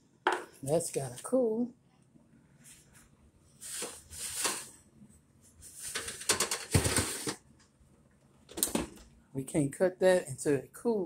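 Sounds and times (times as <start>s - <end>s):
scraping rustle: 3.6s - 4.8s
oven rack and pan rattling: 5.9s - 7.3s.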